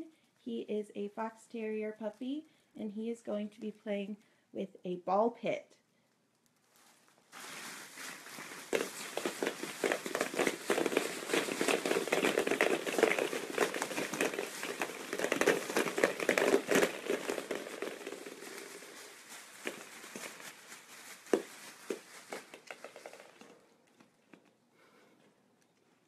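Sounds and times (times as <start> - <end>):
plastic balls clattering on wooden floor: 7.4 - 25.1.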